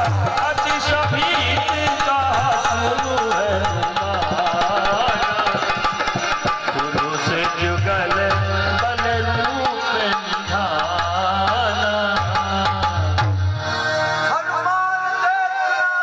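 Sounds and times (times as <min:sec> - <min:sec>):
wordless singing: 0:00.0 - 0:06.1, 0:06.7 - 0:13.2, 0:14.2 - 0:16.0
harmonium: 0:00.0 - 0:16.0.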